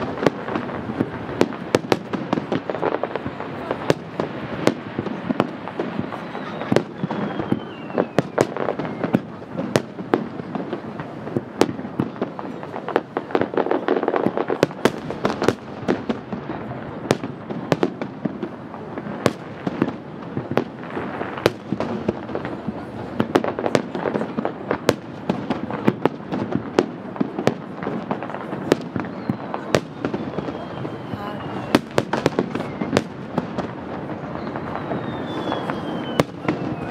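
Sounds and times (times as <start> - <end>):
fireworks bangs: 0.0 - 36.9
fireworks crackling and rumbling: 0.0 - 36.9.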